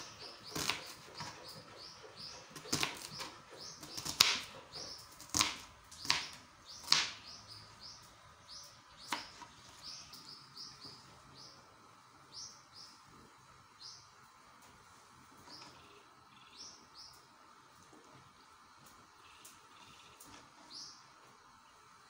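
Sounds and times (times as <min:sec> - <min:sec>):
small birds chirping: 0:00.0 - 0:14.4, 0:15.3 - 0:22.0
knife chopping on plastic board: 0:00.5 - 0:01.4, 0:02.5 - 0:07.2, 0:09.0 - 0:09.5.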